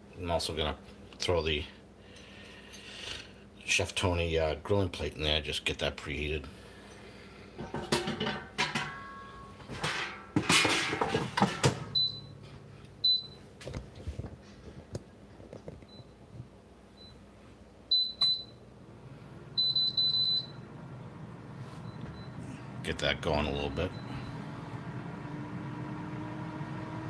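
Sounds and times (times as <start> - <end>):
metal basket clattering: 7.6 - 12.0.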